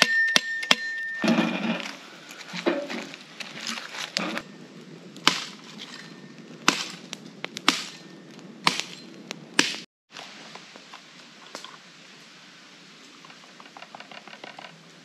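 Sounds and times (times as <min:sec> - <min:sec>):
burning wood popping: 0:00.7 - 0:12.0
wood fire crackling: 0:00.7 - 0:15.0.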